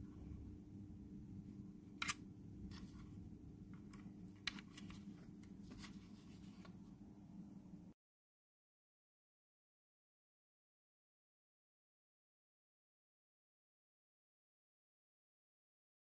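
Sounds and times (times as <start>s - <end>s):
faint low hum: 0.0s - 8.0s.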